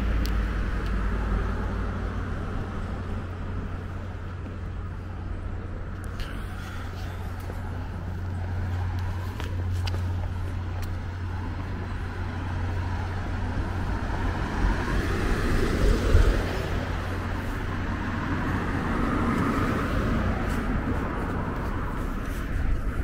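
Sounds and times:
cars passing: 0.0 - 23.0.

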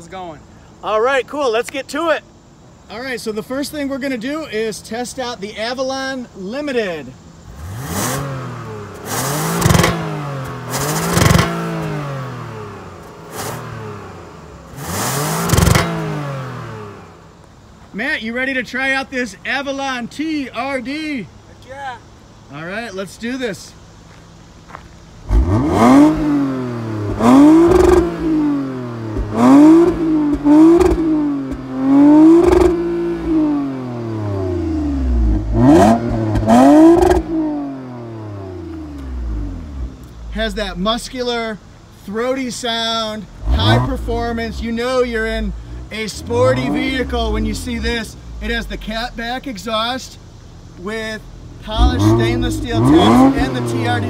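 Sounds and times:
car exhaust revving: 7.2 - 17.8, 23.8 - 54.0.

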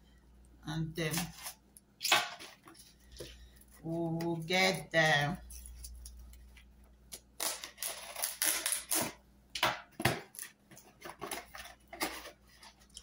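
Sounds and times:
paper packaging tearing and crumpling: 7.4 - 9.2.

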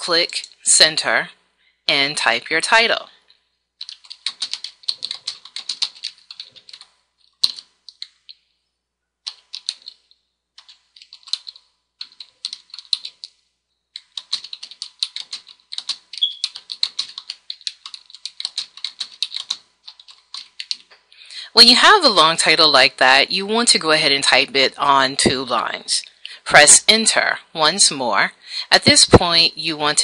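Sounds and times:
typing on a keyboard: 3.8 - 8.4, 9.2 - 20.9.

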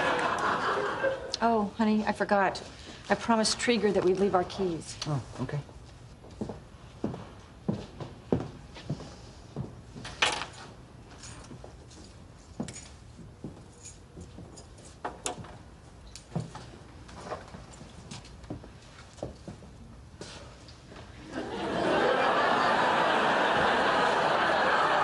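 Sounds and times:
keys jangling and clinking: 10.4 - 13.0, 13.6 - 15.0.

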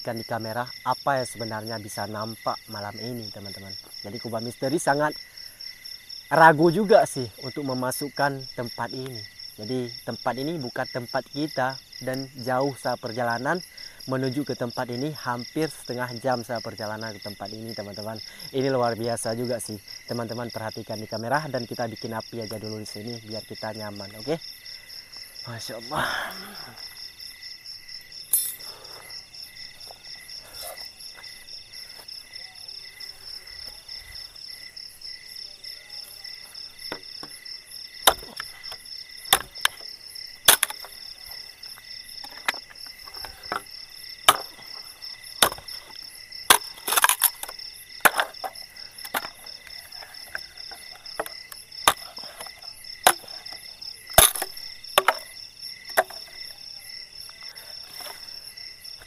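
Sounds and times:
insects chirping: 0.0 - 59.0
stick cracking: 38.0 - 41.0, 44.3 - 44.8, 45.4 - 49.5, 50.3 - 55.3, 55.9 - 56.3.

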